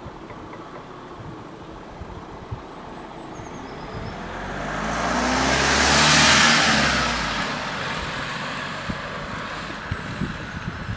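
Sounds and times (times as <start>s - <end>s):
van driving past: 2.8s - 10.9s.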